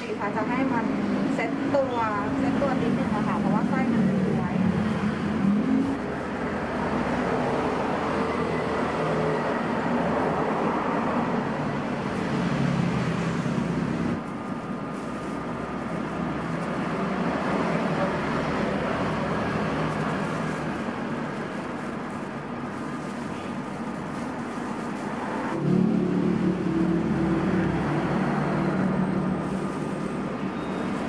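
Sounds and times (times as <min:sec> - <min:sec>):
passing road traffic: 0:00.0 - 0:31.0.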